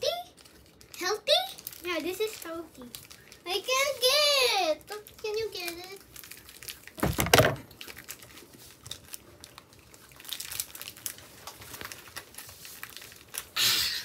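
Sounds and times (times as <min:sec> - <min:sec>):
foil wrapper crinkling: 0:00.1 - 0:13.6
loud thump: 0:07.0 - 0:07.6.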